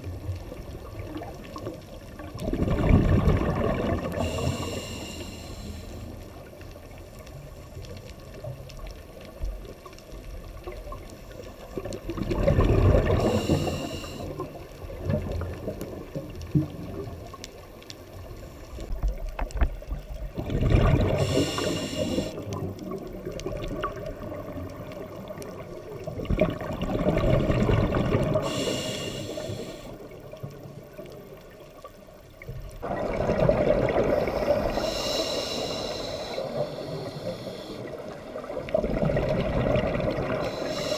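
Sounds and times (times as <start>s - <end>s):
diver exhaling bubbles underwater: 2.3s - 5.0s, 11.8s - 17.1s, 20.3s - 24.6s, 26.1s - 29.6s, 32.8s - 35.0s, 38.4s - 40.9s.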